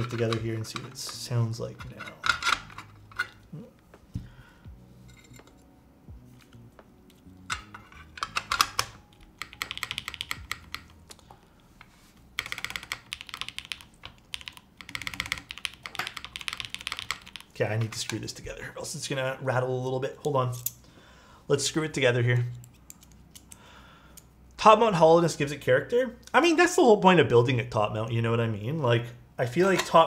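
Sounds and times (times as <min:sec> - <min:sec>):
mechanical keyboard typing: 0:08.1 - 0:11.1, 0:12.4 - 0:17.9
key presses and taps: 0:08.3 - 0:11.2, 0:12.4 - 0:17.5.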